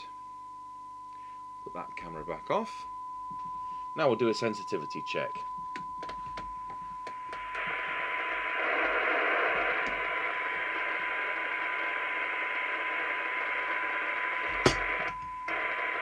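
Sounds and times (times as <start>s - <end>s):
radio clicks: 5.8s - 16.0s
radio receiver hiss: 7.3s - 16.0s.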